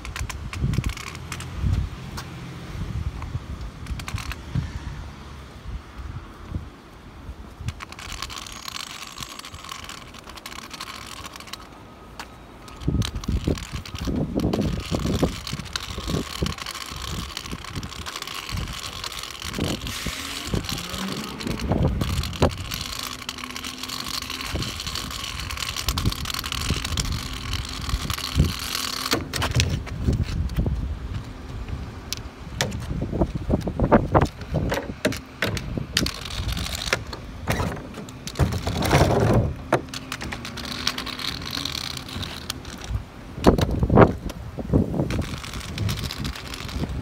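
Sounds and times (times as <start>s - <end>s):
garbage truck rumbling: 12.6s - 47.0s.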